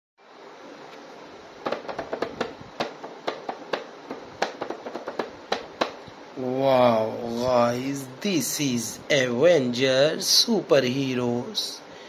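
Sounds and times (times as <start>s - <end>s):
low steady hiss: 0.2s - 12.0s
hand tapping plastic packaging: 1.6s - 6.1s.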